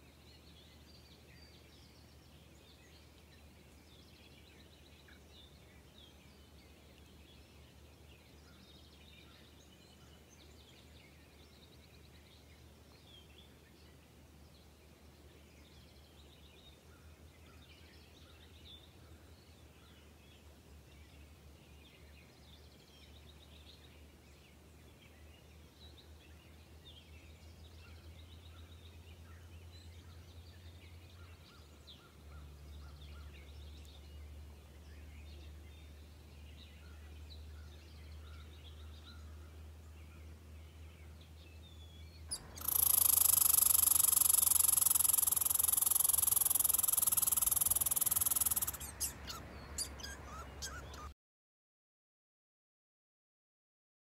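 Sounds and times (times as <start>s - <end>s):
small birds chirping: 15.6s - 51.2s.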